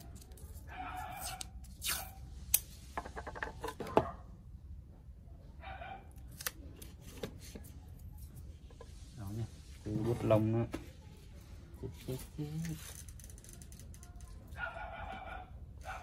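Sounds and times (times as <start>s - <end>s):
masking tape tearing: 0.0s - 2.7s.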